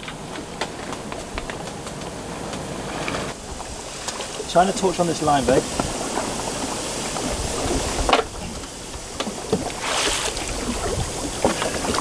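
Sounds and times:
wind rumbling on microphone: 0:00.0 - 0:12.0
fish thrashing and splashing: 0:05.9 - 0:12.0.

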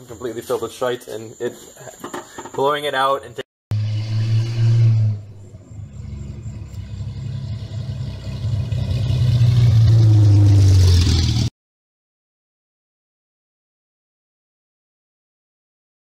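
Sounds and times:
car engine driving toward: 0:03.7 - 0:11.5.

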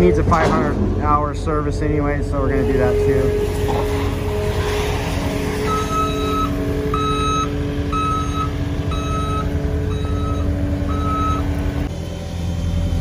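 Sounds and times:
engine running: 0:00.0 - 0:13.0
backup alarm beeps: 0:05.6 - 0:11.7.

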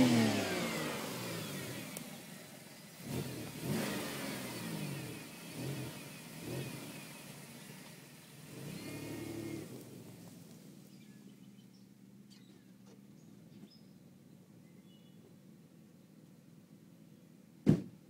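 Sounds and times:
car exhaust revving: 0:00.0 - 0:11.0.

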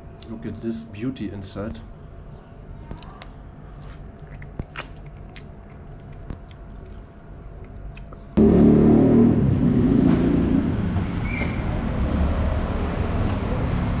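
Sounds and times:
faint chewing clicks: 0:02.9 - 0:08.4
vehicle engine running: 0:08.4 - 0:14.0.

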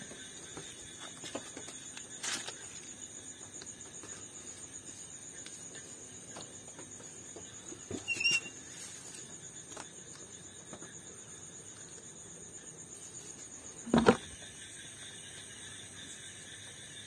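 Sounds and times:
crickets chirring: 0:00.0 - 0:17.0
knock with short squeak: 0:07.9 - 0:08.6.

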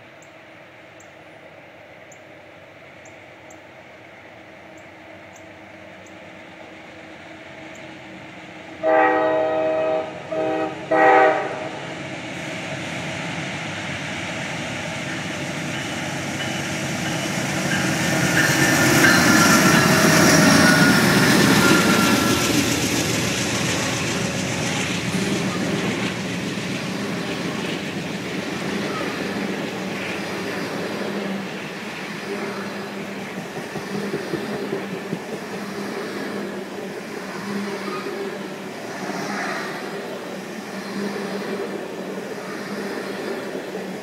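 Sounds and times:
train rumbling on rails: 0:00.0 - 0:44.0
train air horn blasts: 0:08.8 - 0:11.8.

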